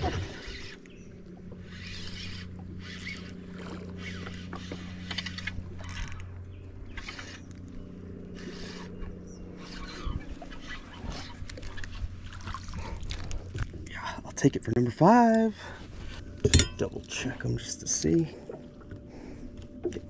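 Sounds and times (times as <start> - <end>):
electric motor humming: 0.0 - 11.6.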